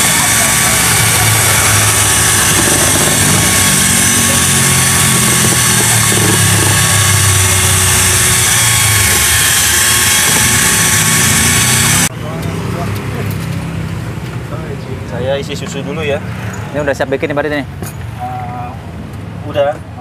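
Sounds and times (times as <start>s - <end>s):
electric drill mixing batter: 0.0s - 12.1s.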